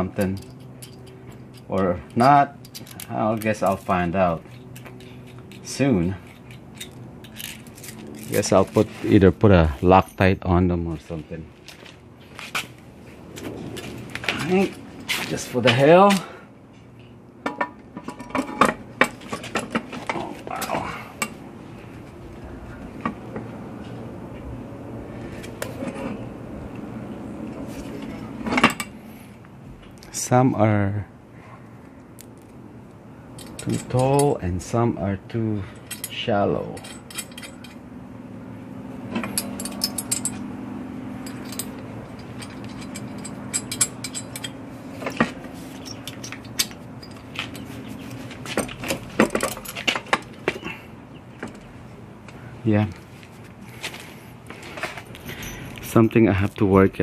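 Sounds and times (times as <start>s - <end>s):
metal clinks and rattles: 0.0s - 9.1s, 9.7s - 10.5s, 17.4s - 21.4s, 33.3s - 34.4s, 35.7s - 37.9s, 39.1s - 50.7s, 54.6s - 56.0s
steady low hum: 0.0s - 57.0s
metal nuts clicking and tapping: 35.8s - 37.8s, 39.1s - 40.5s, 41.2s - 50.6s.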